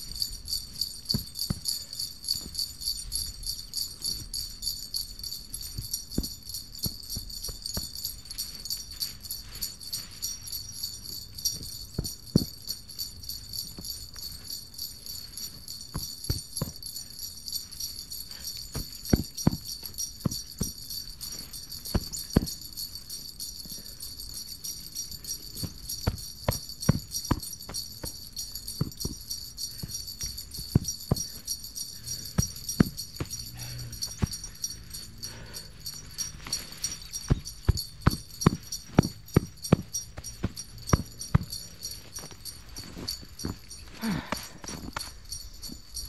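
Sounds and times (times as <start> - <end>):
sleigh bells jingling: 0.0 - 46.0
soft thumps and clicks: 5.6 - 10.0, 10.8 - 12.8, 18.7 - 22.6, 25.5 - 31.5, 32.2 - 35.0, 35.8 - 46.0.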